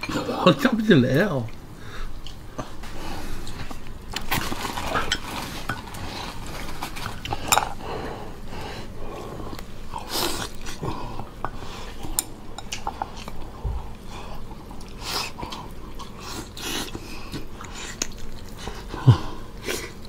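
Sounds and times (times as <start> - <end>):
person chewing and sucking: 8.9 - 20.0.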